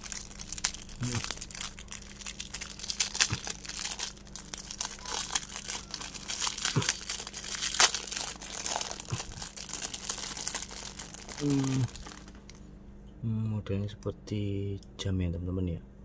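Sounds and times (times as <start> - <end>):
plastic wrap crinkling and tearing: 0.0 - 12.6.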